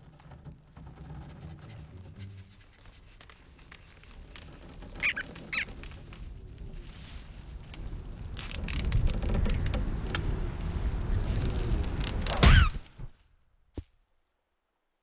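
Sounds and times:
faint clicks and rustles: 2.7s - 12.3s
cartoon rodent squeaks: 5.0s - 5.7s.

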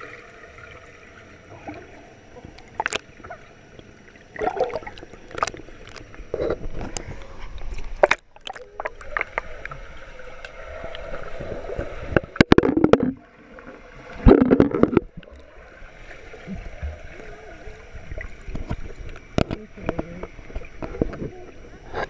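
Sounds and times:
pool water splashing: 0.0s - 22.0s
muffled underwater gurgling: 16.3s - 22.0s.

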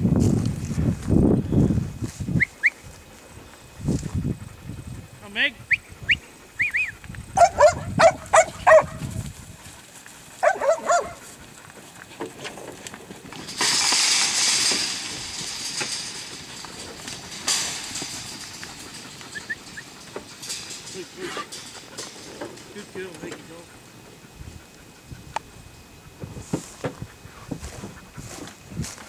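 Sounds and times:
dog barking: 7.4s - 9.0s, 10.4s - 11.2s.

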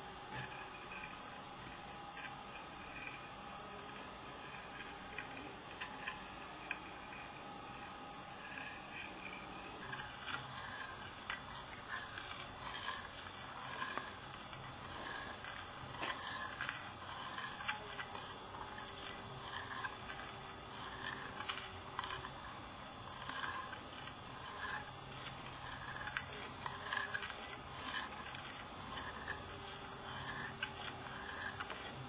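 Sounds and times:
spoon scraping ceramic bowl: 9.3s - 32.0s.

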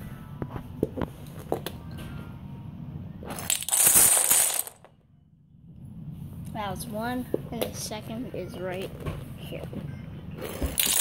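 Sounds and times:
dominoes clattering onto hard floor: 3.3s - 4.9s, 10.4s - 11.0s.

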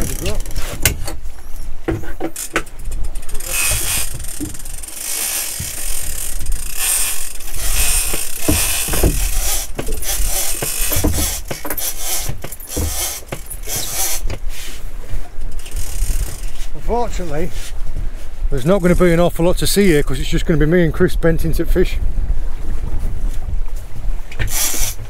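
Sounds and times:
fishing reels cranked: 0.0s - 0.7s, 2.4s - 14.3s, 15.5s - 16.6s, 24.4s - 25.0s
gears and ratchet clicking: 2.4s - 14.3s, 15.5s - 16.5s, 24.4s - 25.0s.

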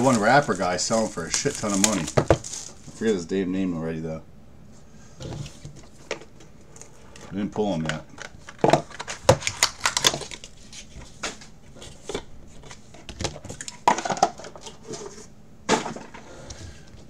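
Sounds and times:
plastic wrap crinkling: 0.0s - 3.2s, 8.4s - 10.9s.

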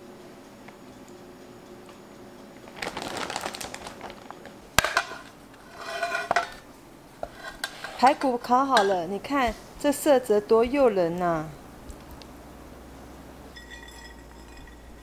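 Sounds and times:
crinkling handling noise: 2.6s - 5.4s.

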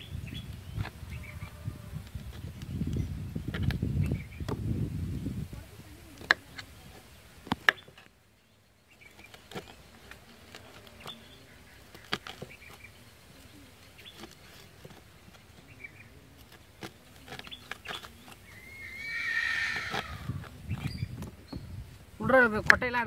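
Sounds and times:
wavering animal call: 18.5s - 20.4s.

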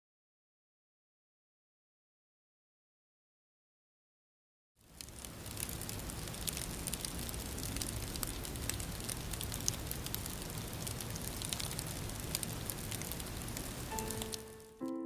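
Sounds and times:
crackling hissing noise: 4.8s - 15.0s
soft piano note: 13.9s - 15.0s.

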